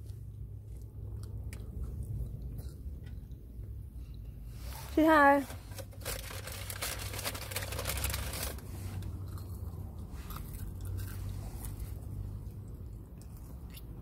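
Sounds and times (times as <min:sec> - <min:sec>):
crunching and chewing fried potato: 0:00.0 - 0:03.4, 0:05.8 - 0:14.0
low steady hum: 0:00.0 - 0:14.0.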